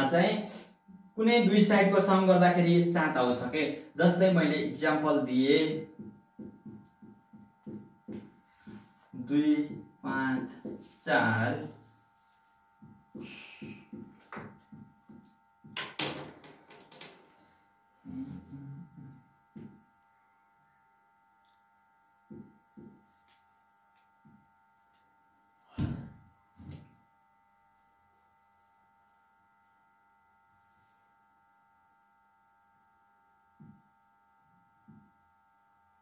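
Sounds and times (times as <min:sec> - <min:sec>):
steady electrical hum: 0:00.0 - 0:36.0
marker knocking on whiteboard: 0:05.8 - 0:11.0, 0:12.8 - 0:17.2, 0:19.5 - 0:19.8, 0:22.2 - 0:23.1, 0:33.6 - 0:33.8.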